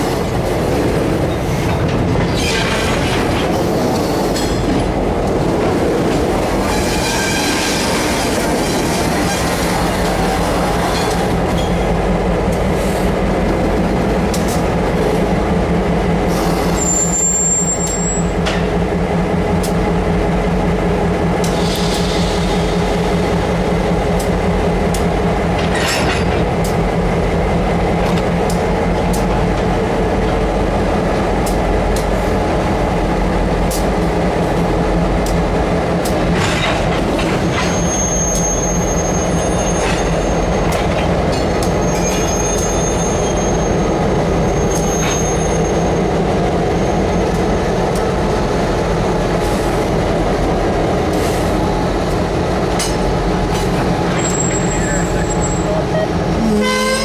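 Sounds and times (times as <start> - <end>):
diesel locomotive engines passing: 0.0 - 57.0
train clanks: 0.0 - 57.0
high wheel squeal: 6.6 - 9.8, 16.4 - 18.3, 37.4 - 40.6, 41.6 - 46.0, 54.1 - 57.0.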